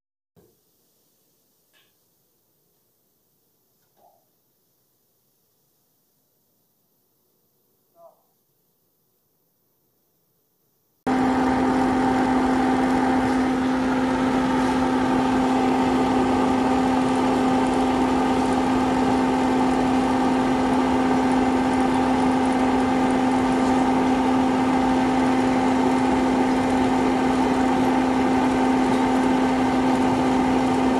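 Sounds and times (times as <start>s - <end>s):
motor humming: 11.1s - 30.9s.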